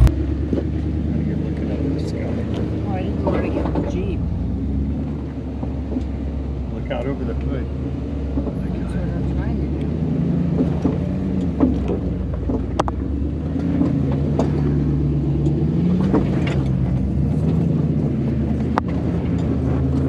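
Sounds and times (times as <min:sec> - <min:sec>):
off-road vehicle engine at low revs: 0:00.0 - 0:20.0
sharp knocks and clicks: 0:10.5 - 0:17.7.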